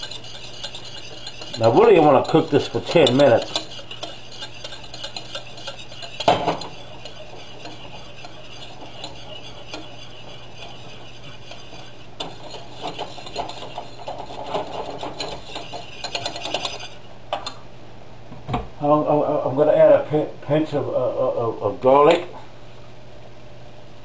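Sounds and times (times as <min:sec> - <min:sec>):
utensil scraping steel saucepan: 0:00.0 - 0:17.6.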